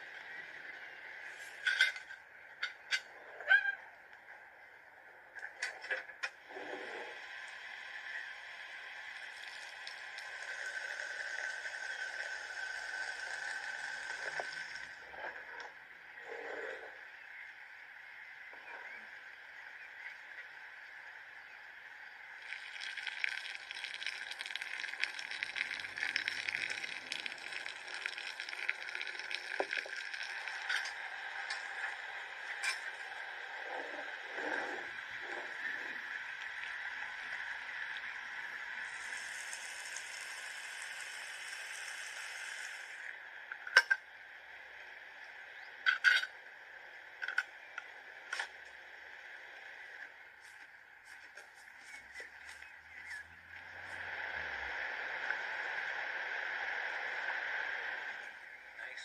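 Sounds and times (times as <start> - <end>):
steady hiss: 19.2 - 43.1
liquid pouring into jar: 22.4 - 30.9.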